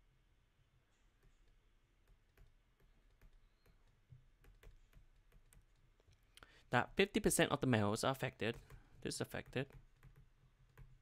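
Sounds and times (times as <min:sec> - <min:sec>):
stylus tapping on drawing tablet: 0:01.2 - 0:06.1, 0:08.3 - 0:11.0.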